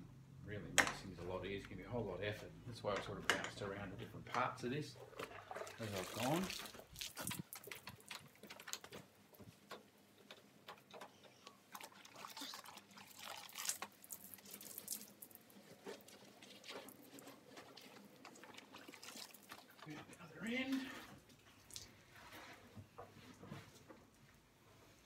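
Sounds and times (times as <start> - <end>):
wet patter: 4.3 - 23.9.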